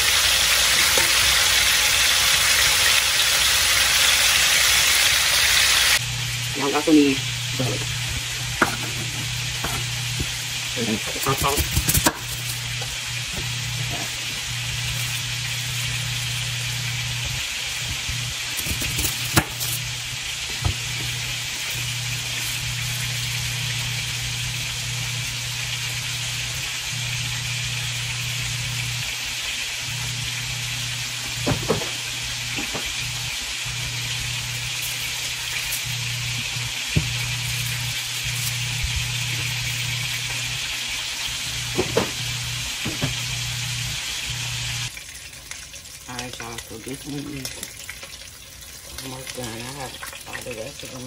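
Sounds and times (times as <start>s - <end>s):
meat sizzling in a pan: 0.0s - 51.0s
low steady hum: 6.0s - 44.9s.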